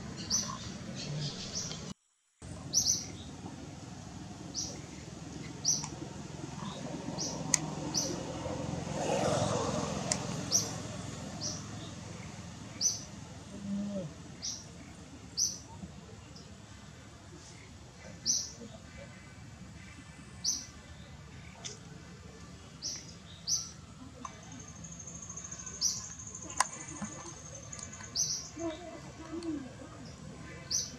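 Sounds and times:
bird chirping: 0.0 - 1.9, 2.7 - 3.4, 4.5 - 6.0, 24.6 - 30.9
outdoor background noise: 0.0 - 30.9.

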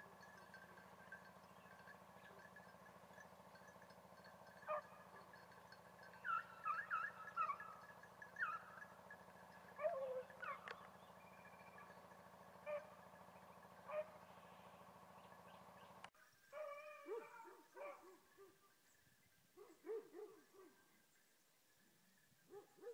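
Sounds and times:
steady low hum: 0.0 - 22.8
dogs yelping bays: 4.4 - 14.3, 16.5 - 18.6, 19.6 - 20.8.

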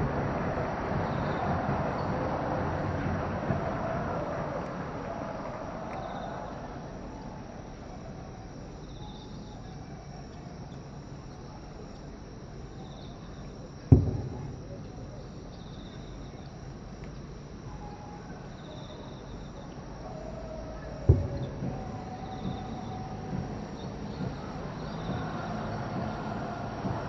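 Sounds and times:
insects chirping in trills: 0.0 - 27.0
distant firework boom: 13.9 - 14.9, 21.0 - 27.0.

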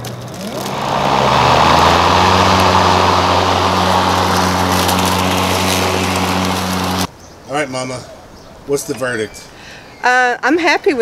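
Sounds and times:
electric lawn mower running: 0.0 - 7.1.

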